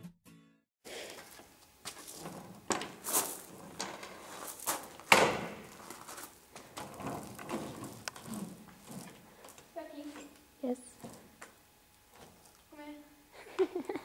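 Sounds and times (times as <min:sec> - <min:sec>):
skateboard wheels rolling: 0:00.9 - 0:09.5.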